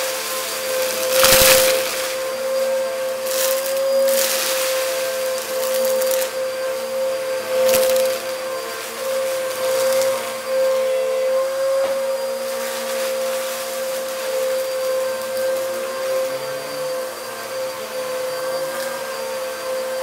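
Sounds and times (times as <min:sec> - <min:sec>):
vacuum cleaner running: 0:00.0 - 0:20.0
debris crackling into vacuum: 0:00.5 - 0:06.5.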